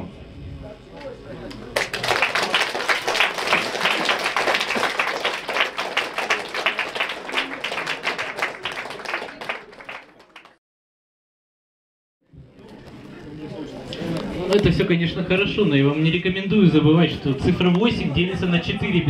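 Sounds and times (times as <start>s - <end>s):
audience applauding: 1.8s - 10.6s.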